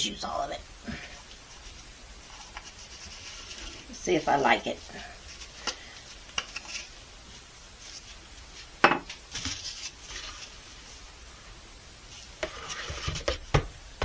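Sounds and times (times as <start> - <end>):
stick scraping plastic bucket: 12.4 - 13.4.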